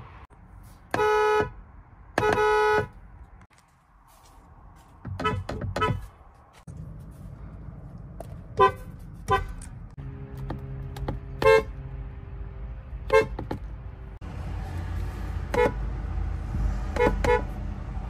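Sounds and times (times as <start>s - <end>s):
car horn honks: 0.9s - 1.6s, 2.2s - 3.0s, 5.1s - 6.1s, 8.5s - 9.6s, 11.2s - 11.8s, 13.0s - 13.5s, 15.5s - 15.8s, 16.9s - 17.6s.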